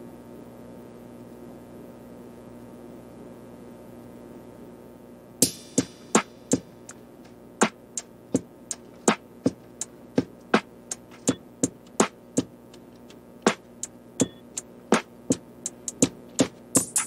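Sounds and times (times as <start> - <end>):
sharp percussive hits: 5.4 - 6.7, 15.7 - 17.0.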